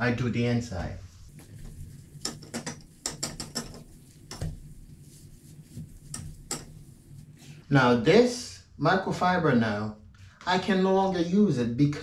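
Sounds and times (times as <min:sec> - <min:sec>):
cloth wiping sink basin: 0:00.7 - 0:08.0.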